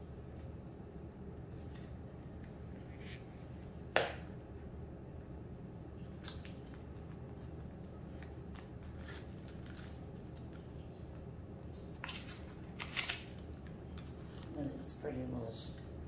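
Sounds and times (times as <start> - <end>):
paper packaging rustling: 12.0 - 14.5.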